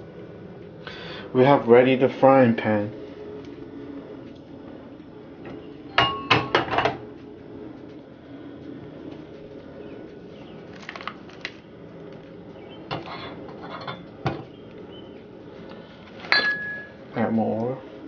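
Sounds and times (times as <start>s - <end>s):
gas stove hiss: 0.0s - 10.7s
bowl and utensils knocking: 5.9s - 7.0s.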